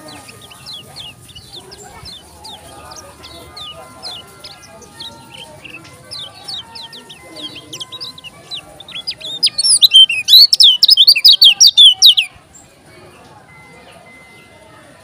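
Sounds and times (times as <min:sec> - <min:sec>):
bird singing high whistled notes: 0:00.4 - 0:12.3.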